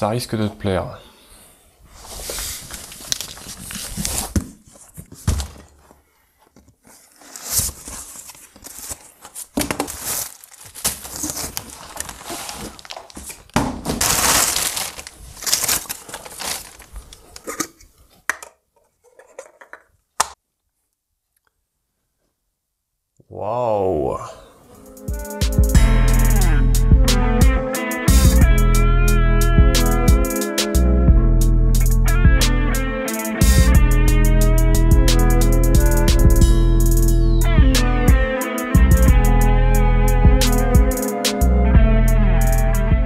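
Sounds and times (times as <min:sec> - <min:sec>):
packaging rustling and tearing: 0:02.0 - 0:05.9, 0:06.5 - 0:17.9.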